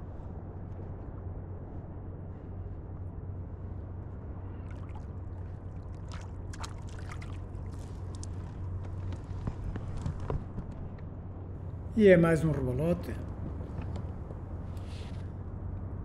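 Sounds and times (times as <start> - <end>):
water sloshing around a kayak: 4.6 - 8.9.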